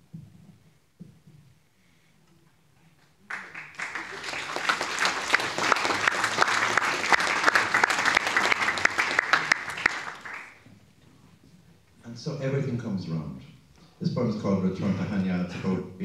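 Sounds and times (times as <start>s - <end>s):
audience applause: 3.3s - 10.6s.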